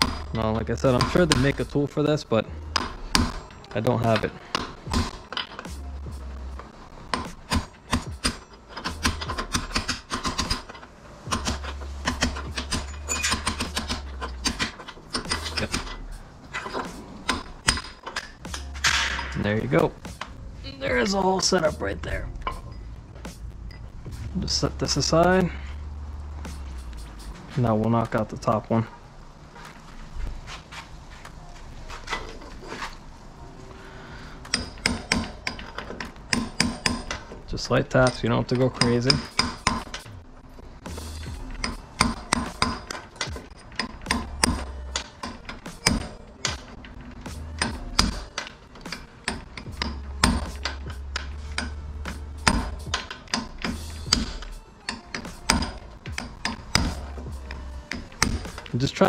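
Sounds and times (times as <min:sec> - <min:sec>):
hammer tapping metal punch: 0:07.1 - 0:16.0, 0:16.6 - 0:19.4, 0:34.4 - 0:40.1, 0:41.3 - 0:47.0, 0:47.6 - 0:58.7.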